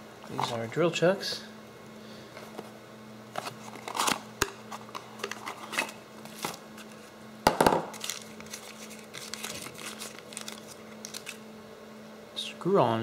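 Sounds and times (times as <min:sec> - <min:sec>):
steady low hum: 0:00.0 - 0:13.0
plastic wrapping crinkling: 0:07.9 - 0:11.4.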